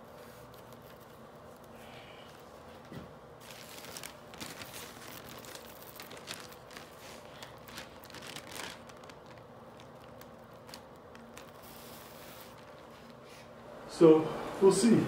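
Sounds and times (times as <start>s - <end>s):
thin paper crinkling and crackling: 2.8s - 13.3s.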